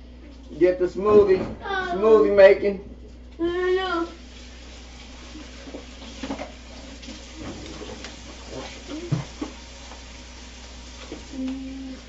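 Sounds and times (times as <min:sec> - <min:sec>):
steady low hum: 0:00.0 - 0:10.0
loud thump: 0:01.2 - 0:01.9.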